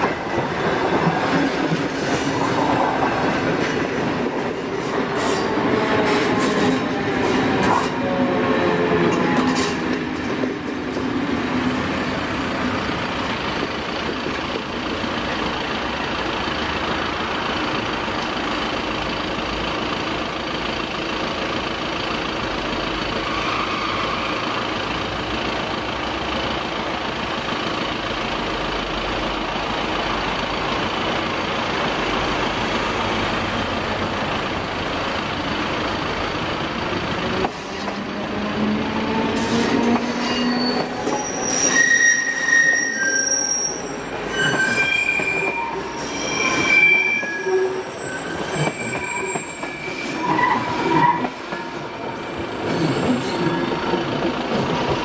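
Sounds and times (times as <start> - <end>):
road vehicles idling: 9.5 - 40.2.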